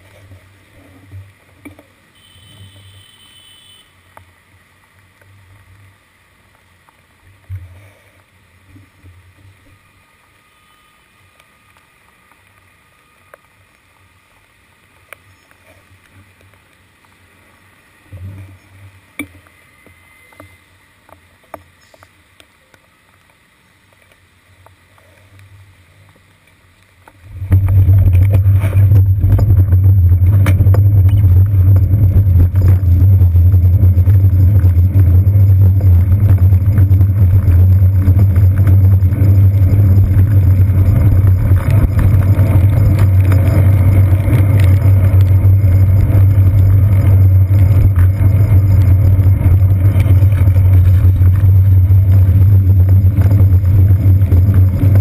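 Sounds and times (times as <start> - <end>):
faint muffled street noise: 0.0 - 28.8
bicycle road rumble and wind: 0.0 - 55.0.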